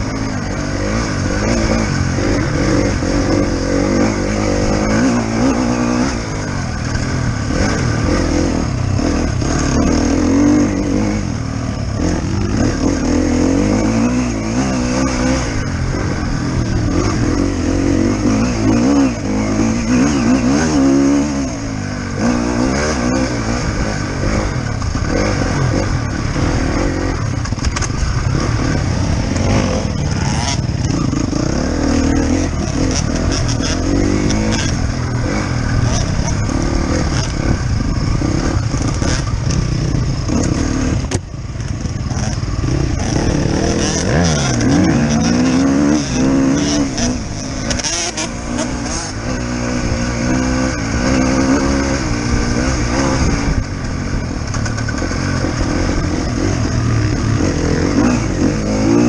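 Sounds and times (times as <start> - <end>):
dirt bike engine revving: 0.0 - 59.0.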